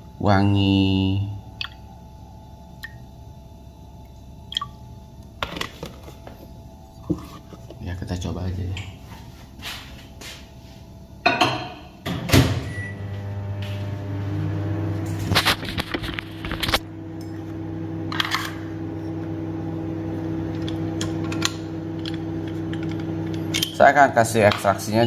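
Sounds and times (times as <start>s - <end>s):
microwave oven humming: 0.0s - 25.0s
microwave clunk: 11.2s - 13.0s.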